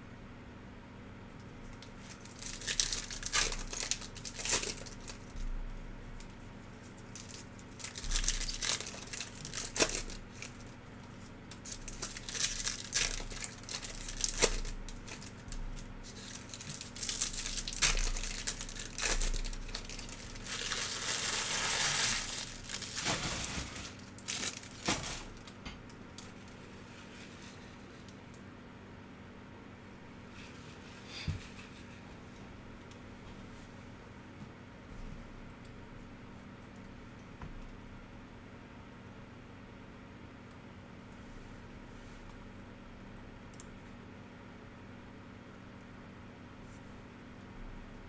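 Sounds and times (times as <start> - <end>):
foil wrappers tearing and crinkling: 1.9 - 5.4, 7.0 - 25.6.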